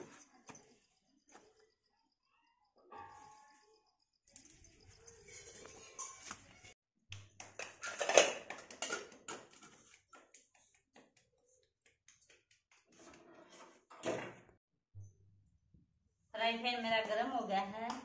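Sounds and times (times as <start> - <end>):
steel utensils clinking on floor: 4.3 - 6.7, 7.5 - 9.6
loud utensil clatter: 7.6 - 9.6.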